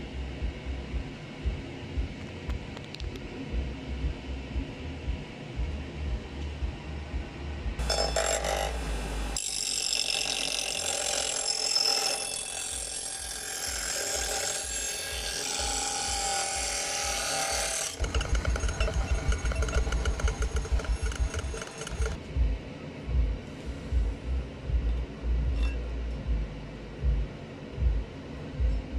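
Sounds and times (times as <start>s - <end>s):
rhythmic low pulsing: 0.0s - 10.0s, 18.0s - 28.9s
bench grinder grinding steel: 7.8s - 22.2s.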